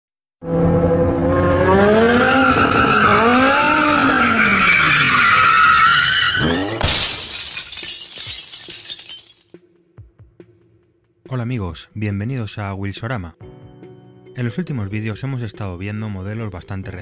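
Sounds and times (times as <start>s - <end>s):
car engine revving: 0.4s - 6.8s.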